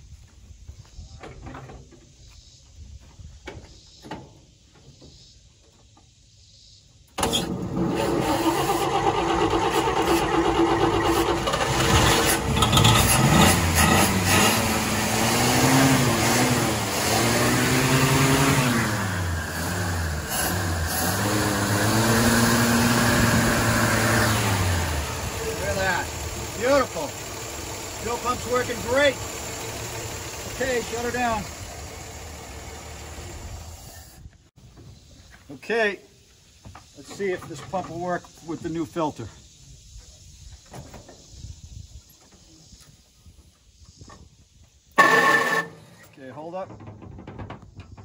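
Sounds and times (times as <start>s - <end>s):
truck engine running: 7.8s - 34.2s.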